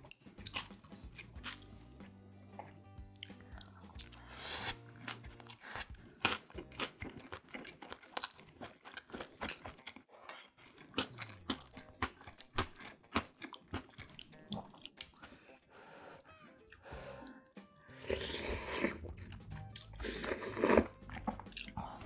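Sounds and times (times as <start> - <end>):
wet crunchy chewing: 2.4 - 15.3, 18.0 - 22.0.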